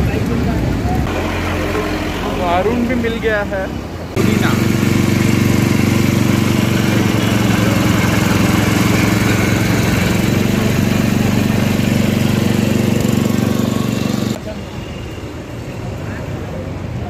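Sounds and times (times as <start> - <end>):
juice crusher motor running: 1.1 - 3.4, 4.2 - 14.4.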